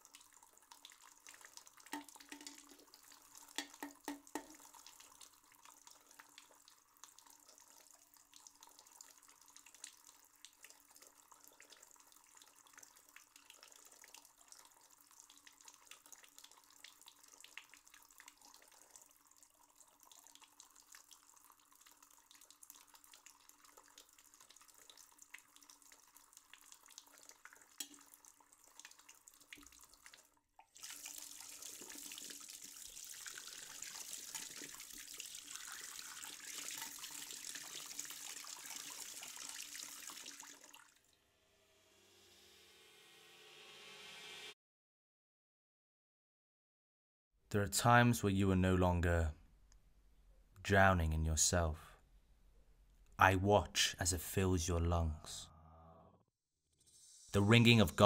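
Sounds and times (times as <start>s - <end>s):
water running from a tap: 0.0s - 41.0s
water splashes and drips: 0.0s - 41.2s.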